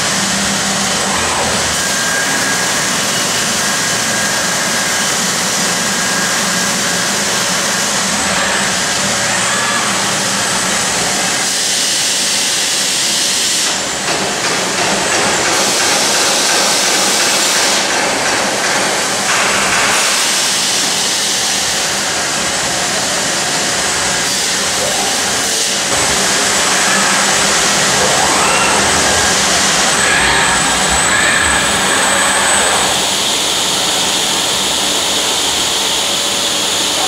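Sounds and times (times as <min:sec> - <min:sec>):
robotic weld grinder grinding metal: 0:25.8 - 0:33.4.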